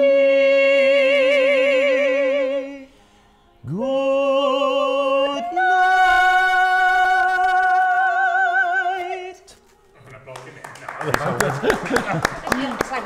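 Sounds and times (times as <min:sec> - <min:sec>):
soprano and baritone singing: 0:00.0 - 0:03.0, 0:03.6 - 0:10.0
singer breathing: 0:02.8 - 0:03.5.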